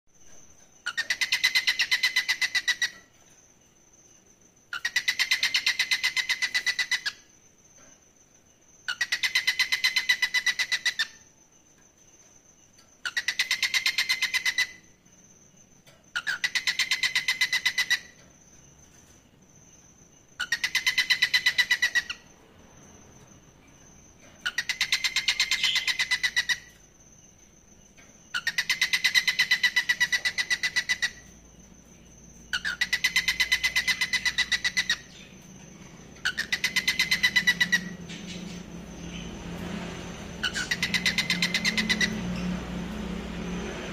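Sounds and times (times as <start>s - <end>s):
cockatiel chattering call: 36.2s - 38.6s, 40.4s - 42.2s.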